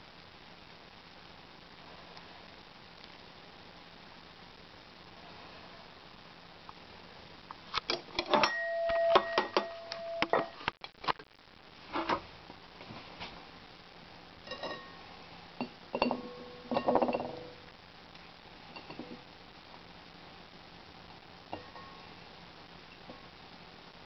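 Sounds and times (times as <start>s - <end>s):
crockery ringing: 8.4s - 10.5s, 16.0s - 17.5s.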